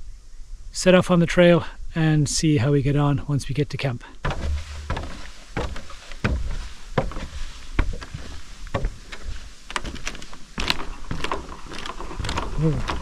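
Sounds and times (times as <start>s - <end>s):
footsteps on wooden planks: 4.2s - 13.0s
low rumble: 4.3s - 5.3s.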